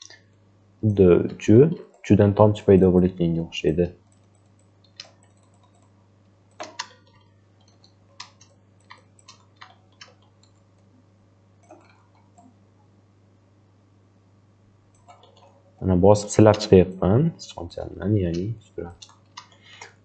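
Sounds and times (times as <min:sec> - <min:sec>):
faint low hum: 0:00.0 - 0:20.0
computer mouse and keyboard clicks: 0:04.0 - 0:05.9, 0:06.5 - 0:10.9, 0:11.6 - 0:12.5, 0:14.9 - 0:15.6, 0:18.3 - 0:20.0.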